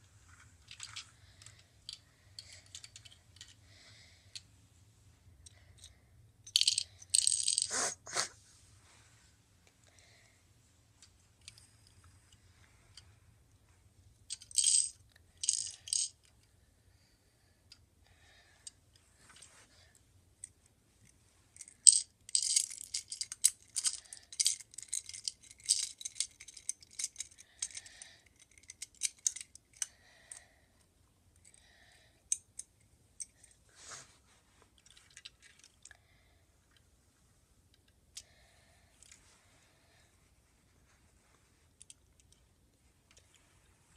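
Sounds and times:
plastic toy bricks clicking and rattling: 0.6s - 3.6s, 5.4s - 7.8s, 14.3s - 16.4s, 21.6s - 29.9s, 34.8s - 36.0s.

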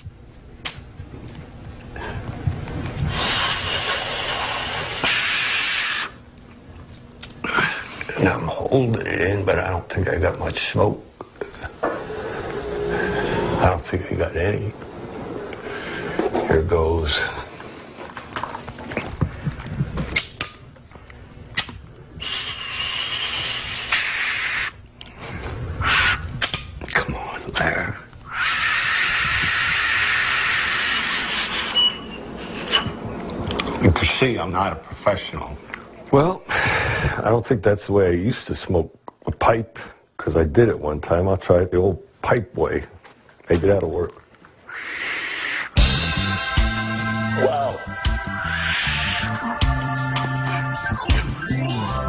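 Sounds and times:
hissing breath through a pipe: 3.0s - 6.2s, 22.2s - 26.3s, 28.3s - 33.0s, 44.7s - 45.8s, 48.5s - 49.2s.

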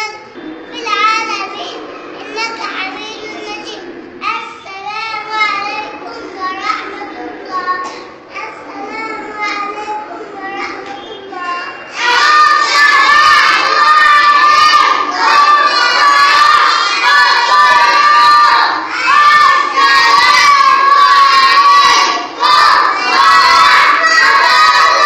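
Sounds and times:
children chanting in unison: 11.9s - 25.0s.

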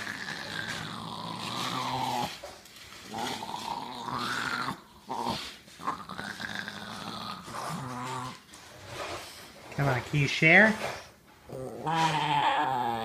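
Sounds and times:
small dog growling: 0.0s - 8.5s, 11.4s - 13.0s.

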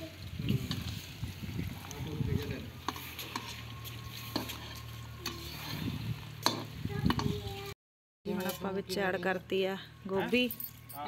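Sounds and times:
hands mixing dry flour rustle: 0.2s - 6.4s.

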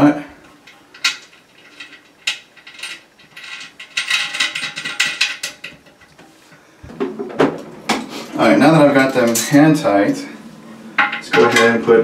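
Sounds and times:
small metallic clicks and scrapes: 0.6s - 6.2s.

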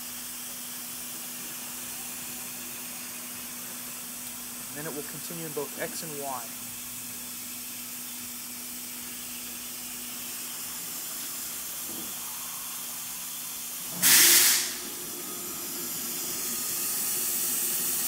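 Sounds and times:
short loud hiss: 13.9s - 14.8s
cnc router axis drives humming: 14.7s - 18.0s.

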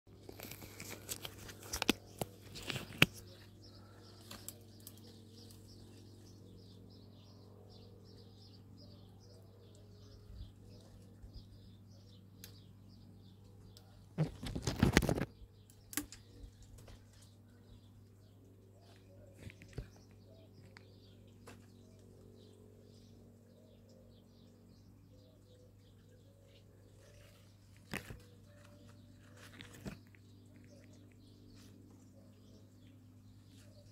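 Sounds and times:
steady low hum: 0.1s - 14.4s
low steady hum: 0.1s - 14.5s, 15.2s - 33.9s
faint birds chirping: 0.1s - 33.9s.

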